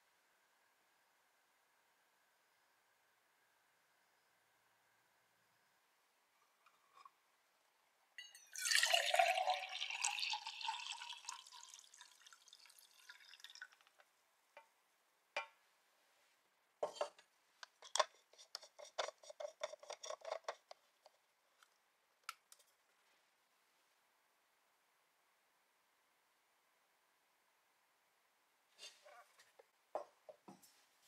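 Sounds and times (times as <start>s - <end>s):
water pouring into bottle: 8.4s - 14.0s
screw cap clicking and scraping: 17.7s - 21.2s.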